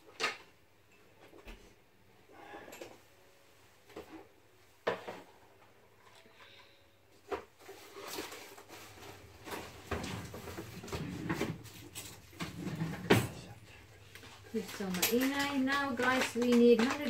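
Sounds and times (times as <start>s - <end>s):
rustling: 7.2s - 17.0s.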